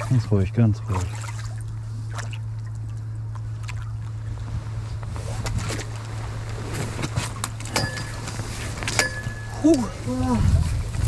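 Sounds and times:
boat engine drone: 0.0s - 11.0s.

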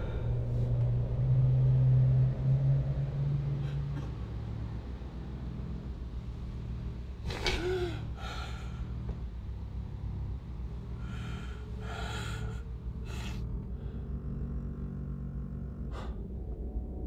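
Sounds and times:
steady low hum: 0.0s - 17.0s
person breathing heavily: 7.6s - 9.2s, 10.9s - 14.3s, 15.9s - 16.4s.

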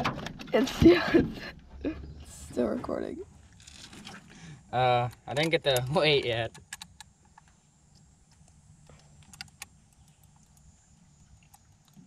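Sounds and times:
small sharp clicks: 5.0s - 10.7s.

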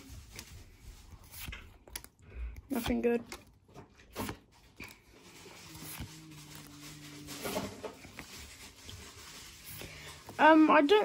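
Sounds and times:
cards sliding and tapping: 0.0s - 5.0s.

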